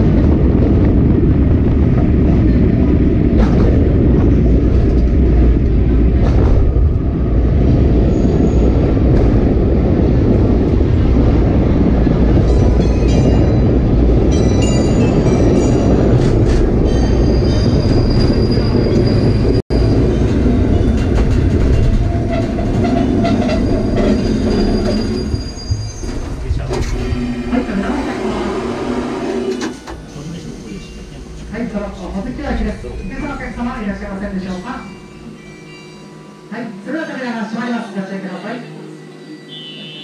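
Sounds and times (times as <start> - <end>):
train rumbling on rails: 0.0 - 37.8
wheel squeals: 22.0 - 27.5.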